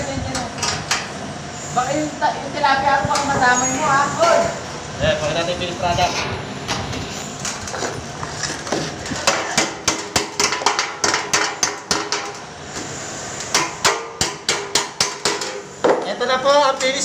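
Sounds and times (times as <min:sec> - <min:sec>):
hammer striking sheet metal: 0:09.2 - 0:12.4, 0:13.5 - 0:16.0.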